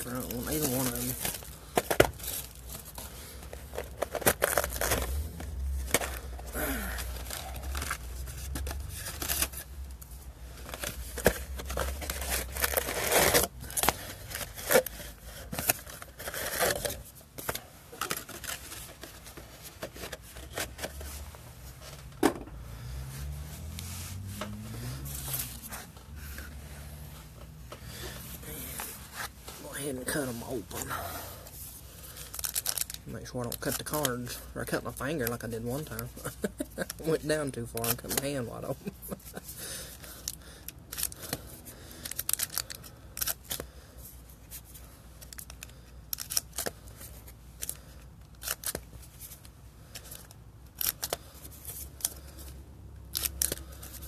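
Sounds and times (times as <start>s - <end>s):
plastic wrappers crinkling and tearing: 0.0s - 21.0s, 32.0s - 43.7s, 44.4s - 52.4s, 53.1s - 54.0s.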